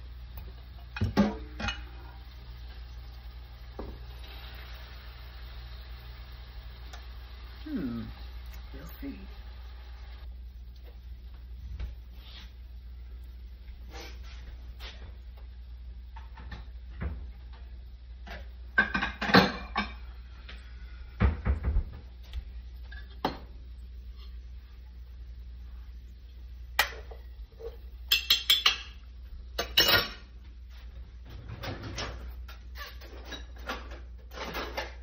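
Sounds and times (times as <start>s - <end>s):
pan and utensils clattering: 0.8s - 2.2s, 18.2s - 20.1s, 26.8s - 29.0s, 29.6s - 30.3s, 31.2s - 35.0s.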